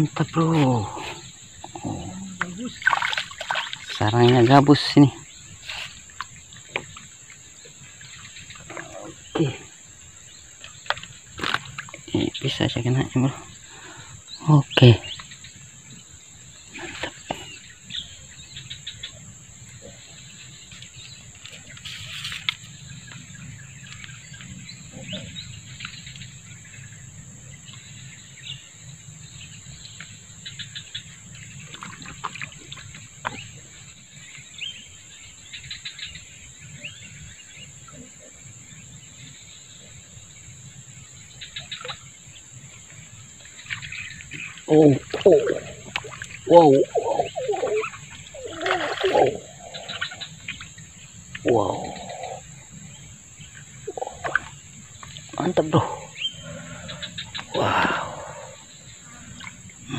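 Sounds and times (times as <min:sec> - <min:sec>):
high-pitched insect drone: 0:00.0 - 0:06.2, 0:44.6 - 0:59.9
bird chirps: 0:00.0 - 0:39.9, 0:43.4 - 0:59.9
faint clicks or rustles: 0:21.4 - 0:22.7.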